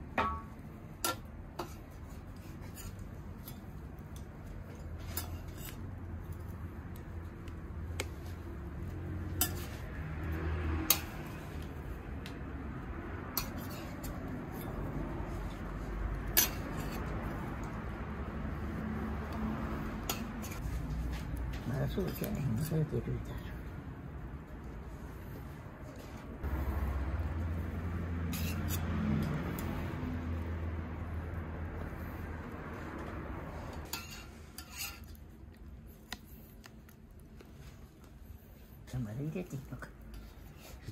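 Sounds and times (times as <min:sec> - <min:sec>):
metal spatulas scraping griddle: 0:01.0 - 0:06.6, 0:09.2 - 0:11.6, 0:13.3 - 0:17.7, 0:20.0 - 0:23.5, 0:28.2 - 0:29.9, 0:33.6 - 0:35.2.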